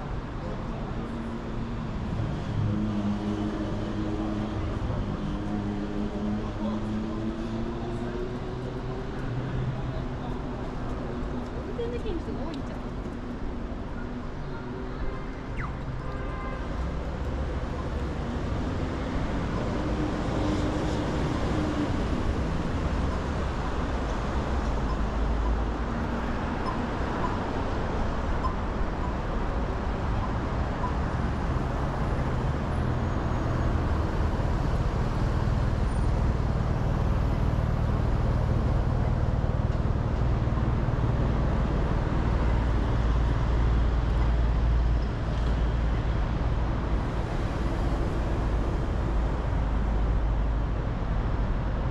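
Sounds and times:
city road traffic: 0:00.0 - 0:51.9.

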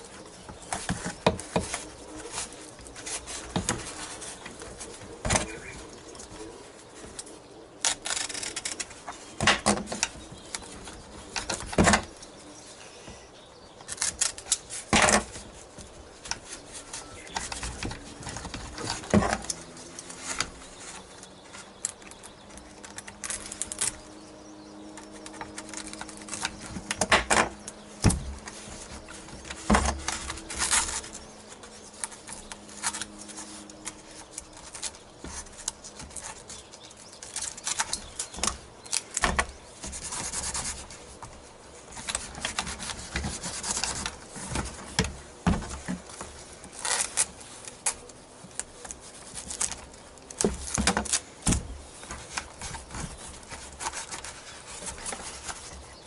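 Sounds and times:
foam rustling: 0:00.0 - 0:13.2.

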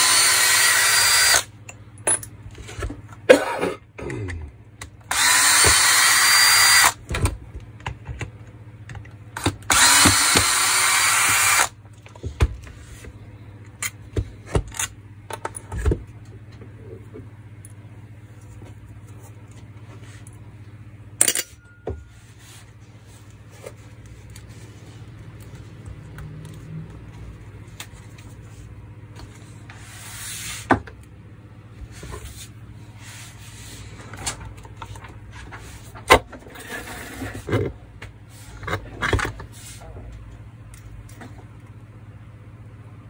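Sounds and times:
metal scraping and rubbing: 0:36.5 - 0:37.6.

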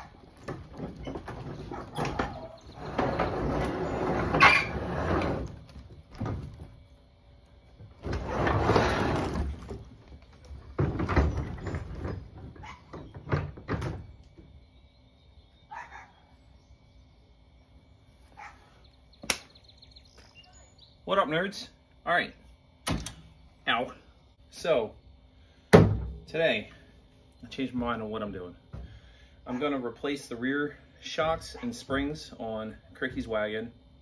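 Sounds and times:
wooden barn door pushed open: 0:00.0 - 0:06.8, 0:07.8 - 0:14.2.

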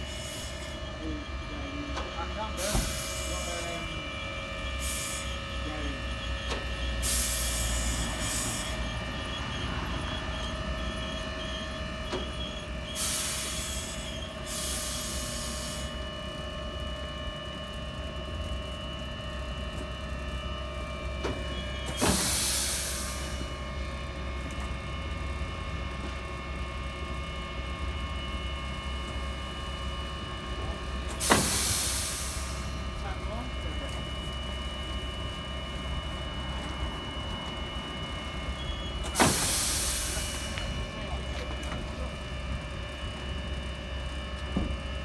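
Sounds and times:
trams humming: 0:00.0 - 0:45.0
air hissing: 0:22.0 - 0:23.4, 0:31.2 - 0:32.7, 0:39.1 - 0:40.7.

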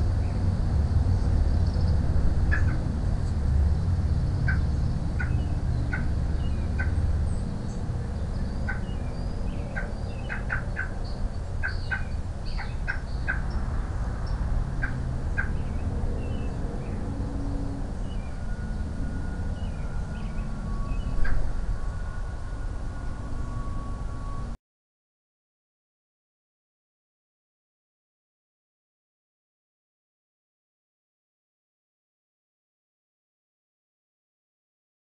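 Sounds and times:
birds chirping: 0:00.0 - 0:24.4
steady low rumble: 0:00.0 - 0:24.6.

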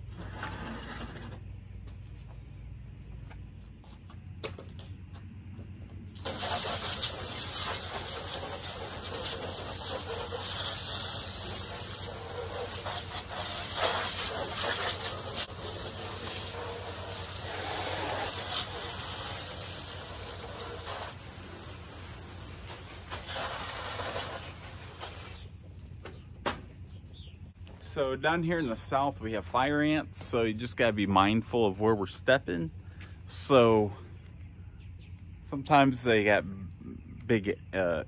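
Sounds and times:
hose spraying water on glass: 0:06.2 - 0:25.6.

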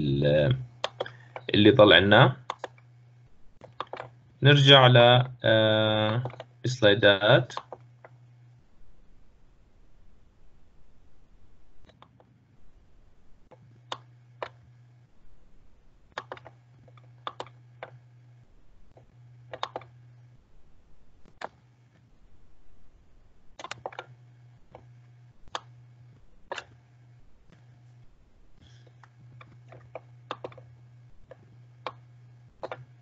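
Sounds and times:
low hum: 0:00.0 - 0:33.0
mouse and keyboard clicks: 0:00.8 - 0:01.5, 0:02.4 - 0:02.8, 0:03.6 - 0:04.2, 0:06.0 - 0:06.5, 0:07.5 - 0:08.2, 0:13.5 - 0:14.7, 0:16.1 - 0:18.0, 0:19.0 - 0:20.0, 0:23.6 - 0:24.1, 0:25.5 - 0:25.8, 0:26.5 - 0:26.8, 0:28.6 - 0:30.7, 0:31.3 - 0:33.0.

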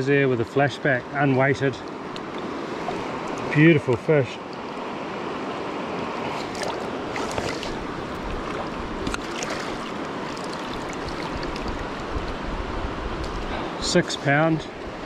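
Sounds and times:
river running over stones: 0:02.2 - 0:13.4.

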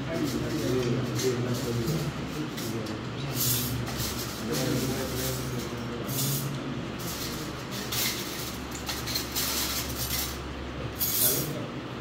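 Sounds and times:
plates bowls and spoons clinking: 0:00.2 - 0:11.6.

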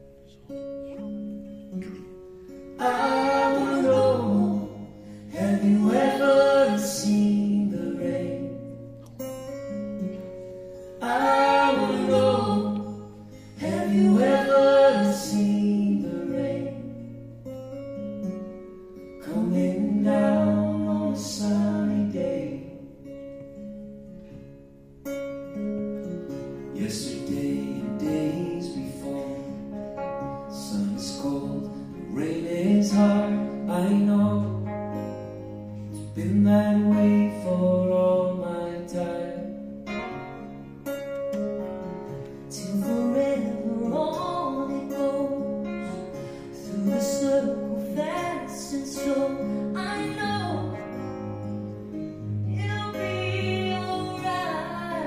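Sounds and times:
acoustic guitars playing: 0:00.0 - 0:55.0
people singing: 0:02.8 - 0:08.8, 0:11.0 - 0:17.2, 0:19.2 - 0:22.9.

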